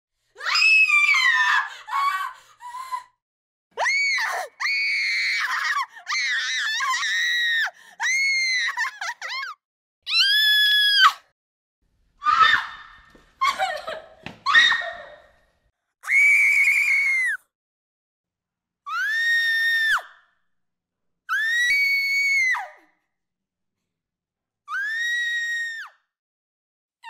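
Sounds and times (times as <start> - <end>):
girls screaming: 0.4 - 2.4, 12.2 - 13.7, 14.4 - 15.2.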